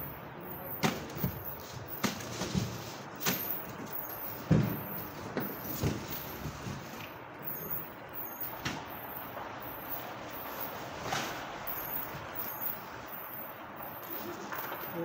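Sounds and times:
rustling of packaged food: 1.0 - 4.3.

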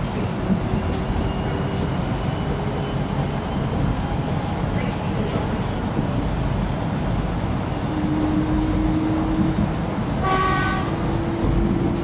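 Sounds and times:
train interior rumble: 0.0 - 12.0
train horn toot: 10.2 - 11.2.

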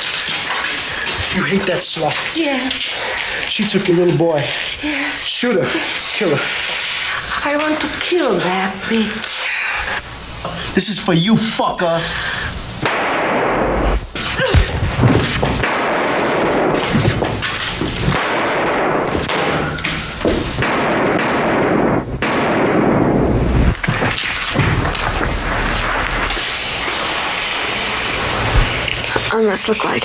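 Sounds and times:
rapid pistol shots: 12.8 - 14.0, 15.3 - 26.6.

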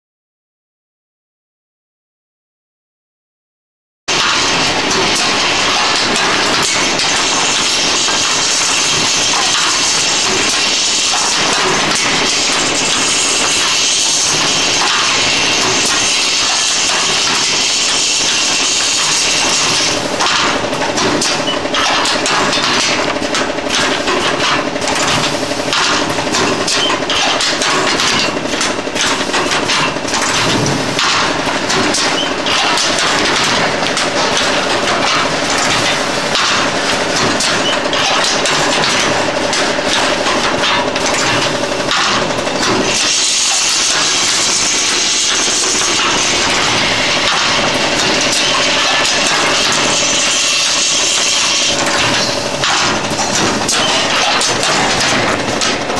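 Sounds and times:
machine clattering: 4.1 - 55.9
steady machine hum: 4.1 - 55.9.

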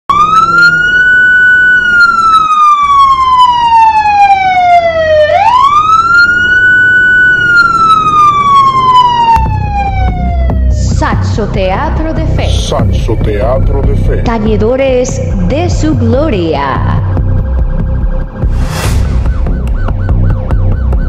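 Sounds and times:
siren wailing: 0.1 - 11.2, 16.7 - 21.0.

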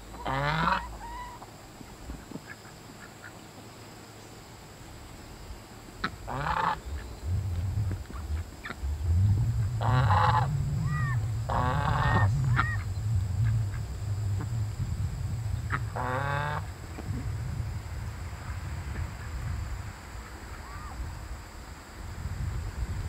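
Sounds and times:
goose honking: 0.1 - 1.4, 6.0 - 6.8, 9.8 - 12.9, 15.7 - 16.7
low rumble: 6.0 - 21.4.

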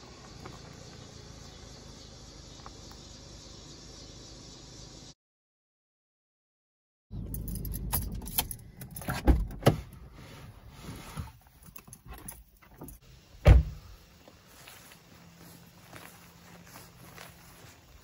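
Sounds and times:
keys jangling: 7.2 - 9.2
car door thump: 13.4 - 13.9.

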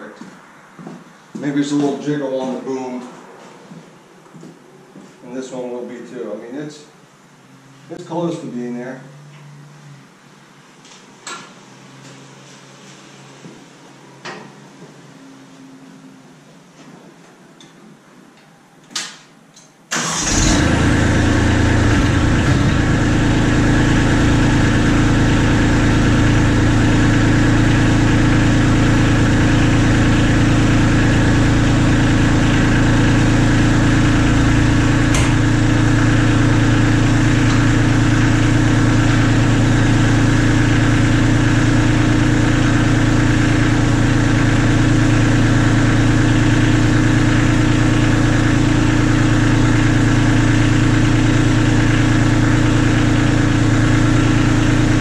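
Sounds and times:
diesel engine idling: 19.9 - 55.0.

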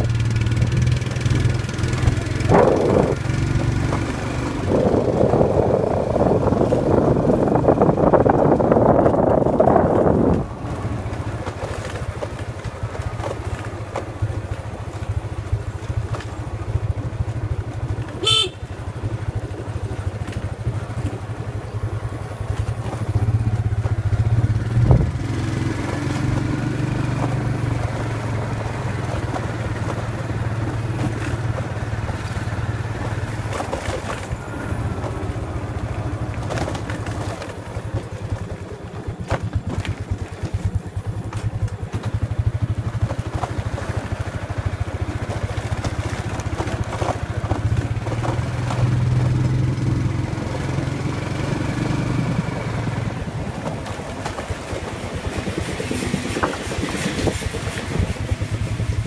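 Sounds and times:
small motorbike engine running: 0.0 - 59.0
bike knocks and rattles: 20.0 - 50.0.

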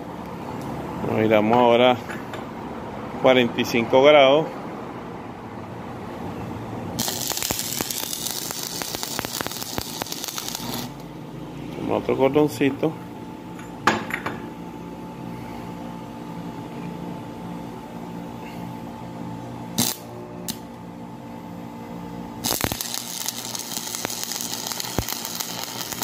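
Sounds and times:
steady hum: 0.0 - 26.0
welding arc crackling and hissing: 7.0 - 11.1, 19.8 - 20.6, 22.4 - 26.0.

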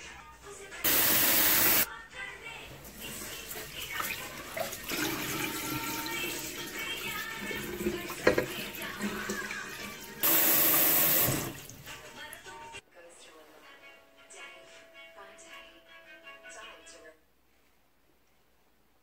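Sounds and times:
water pouring into a sink: 0.9 - 1.9, 2.9 - 12.1
water sloshing in a pot: 2.8 - 10.2.

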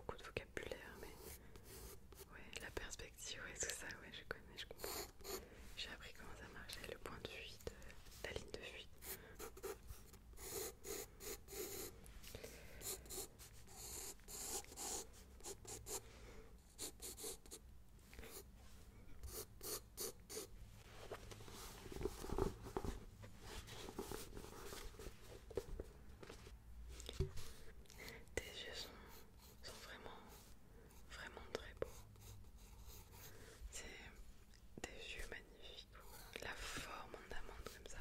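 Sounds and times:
pencil scratching on paper: 1.0 - 2.3, 4.8 - 5.4, 9.0 - 11.9, 12.8 - 16.0, 16.6 - 17.6, 19.2 - 20.5, 31.8 - 33.4.

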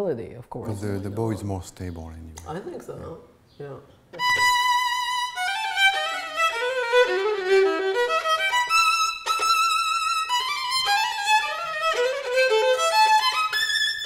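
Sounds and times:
solo violin melody: 4.2 - 14.0.

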